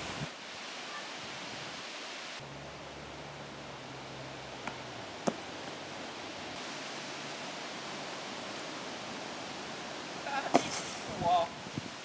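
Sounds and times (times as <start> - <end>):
wind noise on microphone: 0.0 - 2.4, 8.8 - 12.0.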